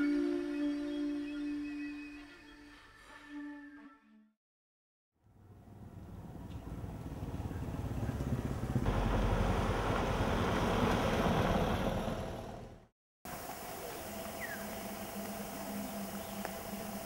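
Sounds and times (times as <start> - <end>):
vehicle engine and road noise: 5.2 - 13.6.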